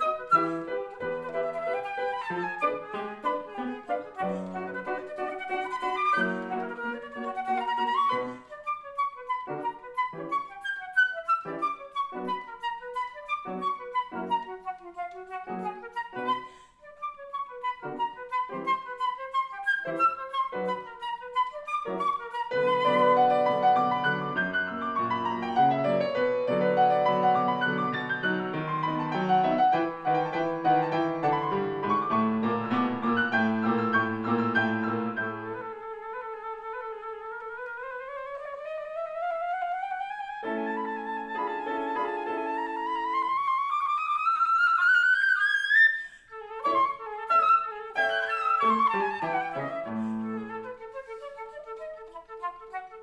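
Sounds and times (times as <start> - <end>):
flute melody: 0.0 - 53.0
piano chords: 21.7 - 35.8, 40.3 - 43.7.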